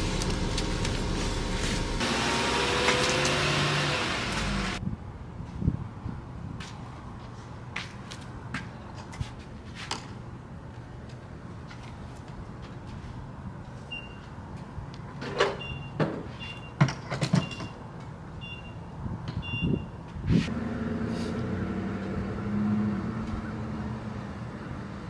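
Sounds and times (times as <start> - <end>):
short high beeps: 19.4 - 20.0.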